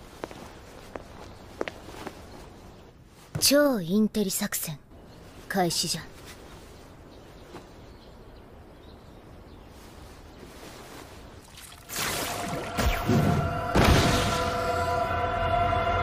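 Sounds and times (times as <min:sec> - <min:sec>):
sustained music tones: 0:12.2 - 0:16.0
heavy hits: 0:12.7 - 0:15.3.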